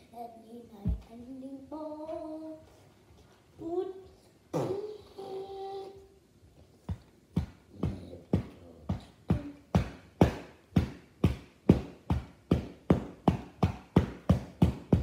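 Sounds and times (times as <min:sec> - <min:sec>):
steady sharp thumps: 0:06.8 - 0:15.0.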